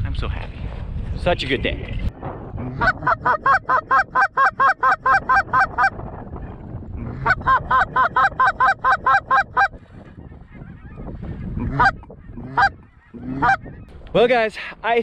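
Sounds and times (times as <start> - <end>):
goose honking: 2.7 - 5.9, 7.1 - 9.8, 11.6 - 13.9.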